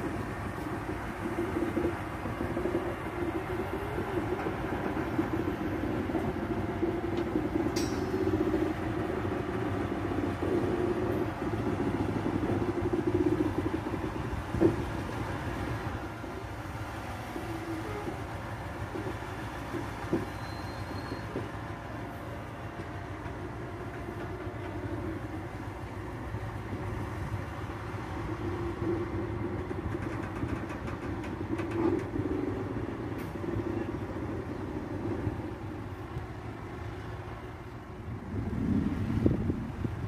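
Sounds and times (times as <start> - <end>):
crane engine running: 0.0 - 40.0
sharp metallic knock: 7.8 - 8.6.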